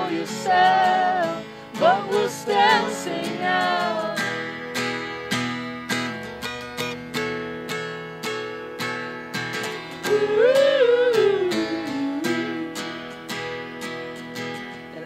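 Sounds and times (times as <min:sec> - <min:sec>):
acoustic guitar strumming: 0:00.0 - 0:15.0
wordless sung note: 0:10.1 - 0:13.0.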